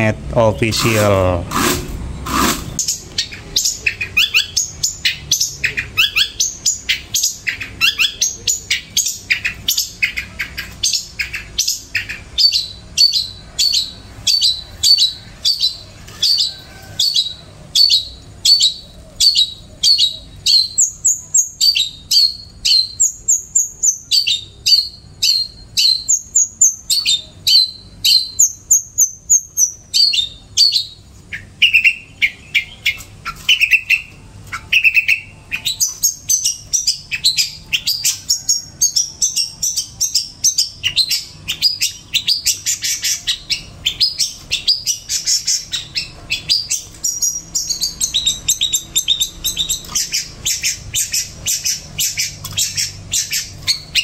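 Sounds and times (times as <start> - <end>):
songbird singing: 2.1 - 54.0.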